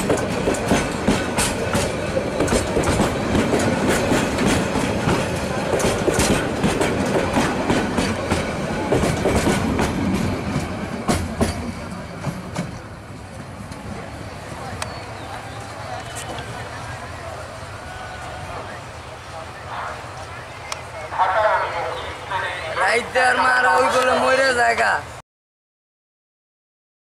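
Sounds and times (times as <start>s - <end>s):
train wheels clattering over rail joints: 0.0s - 12.9s.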